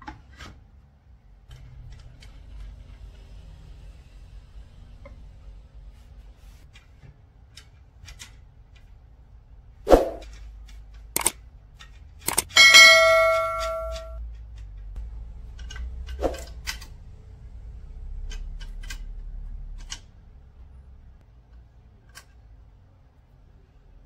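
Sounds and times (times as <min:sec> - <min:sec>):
hardware clicks and knocks: 0:10.2 - 0:17.0
metal part ringing clang: 0:12.3 - 0:14.2.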